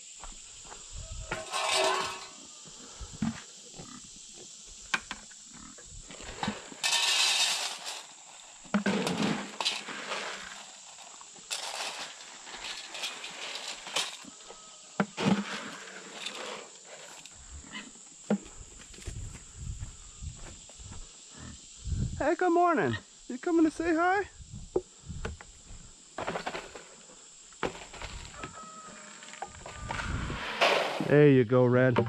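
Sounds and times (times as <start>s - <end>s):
feed poured into metal pan: 1.4s - 2.4s, 6.4s - 8.3s.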